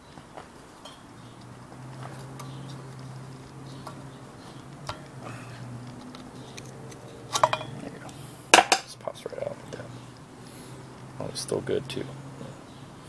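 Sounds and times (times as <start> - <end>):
metal clicks and scrapes: 5.8 - 8.2.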